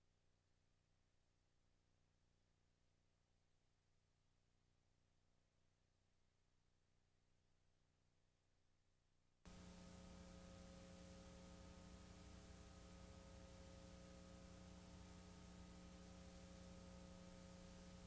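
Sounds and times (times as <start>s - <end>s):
faint electrical hum with hiss: 9.5s - 18.0s.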